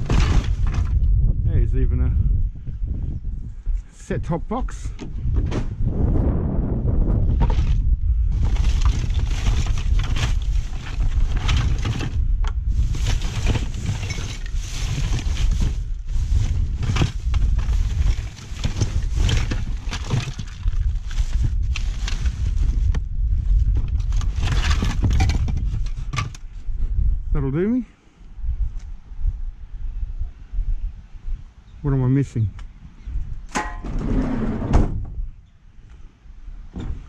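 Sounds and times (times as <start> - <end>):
junk rustling and clattering: 0.0 - 1.1, 7.2 - 26.6, 36.6 - 37.0
wind buffeting microphone: 0.0 - 37.0.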